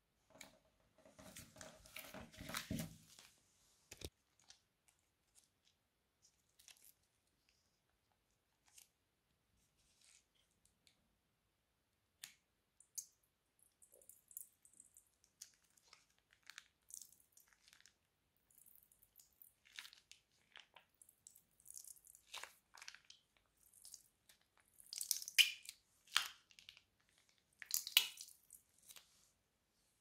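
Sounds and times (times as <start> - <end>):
slime crackling and squishing: 13.7 - 29.1.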